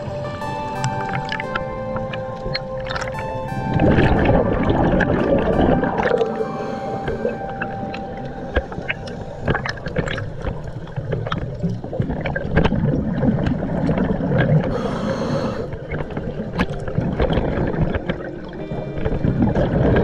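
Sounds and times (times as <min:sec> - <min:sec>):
exhaled bubbles gurgling: 0:01.0 - 0:20.0
underwater regulator breathing: 0:06.2 - 0:09.7, 0:14.6 - 0:16.0.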